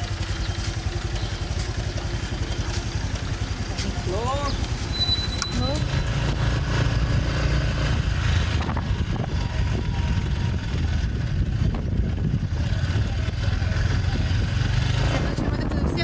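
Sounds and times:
scooter engine running: 0.0s - 16.0s
wind rumbling over microphone: 5.8s - 16.0s.

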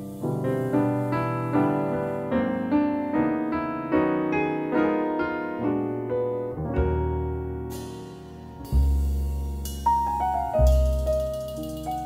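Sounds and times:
piano playing: 0.0s - 12.0s
low bass note: 6.6s - 12.0s.

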